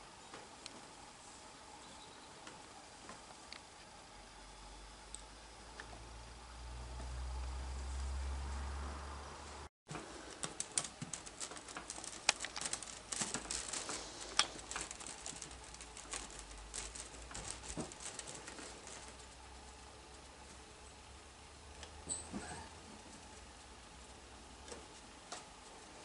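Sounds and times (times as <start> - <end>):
low steady hum: 0.0 - 26.0
kitten rustling in wicker basket: 9.9 - 20.7.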